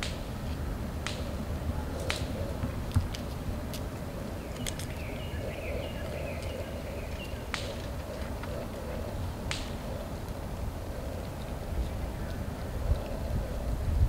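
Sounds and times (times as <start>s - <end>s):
low wind rumble: 0.0s - 14.0s
sharp dry clicks: 6.4s - 8.6s.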